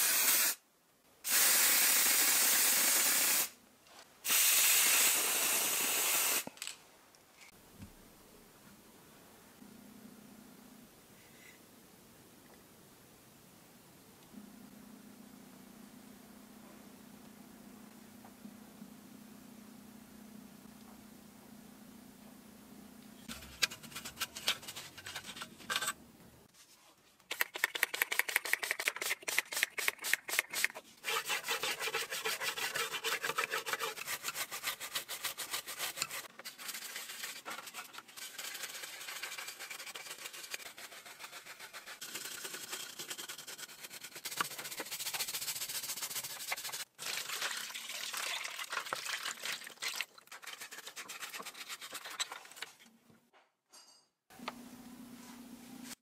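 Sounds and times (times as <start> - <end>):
stiff brush scrubbing plastic: 23.3 - 25.7, 27.3 - 52.9.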